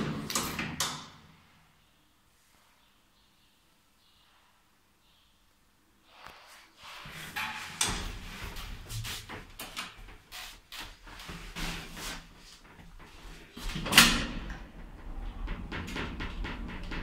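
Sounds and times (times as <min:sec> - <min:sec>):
lift doors clunking and rattling: 0:12.7 - 0:17.0.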